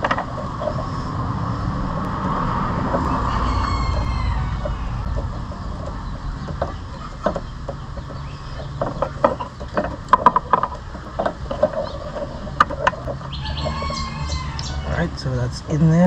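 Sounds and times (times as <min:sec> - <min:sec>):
rooster crowing: 0:02.6 - 0:05.1, 0:13.3 - 0:15.2.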